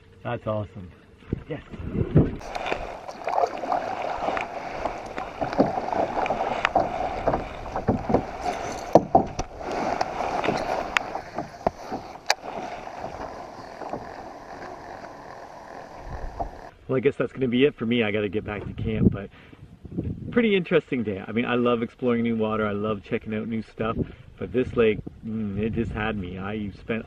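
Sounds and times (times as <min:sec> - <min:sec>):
paddle splashing water: 0:01.2 - 0:16.7
paddle knocking against canoe: 0:02.2 - 0:16.7.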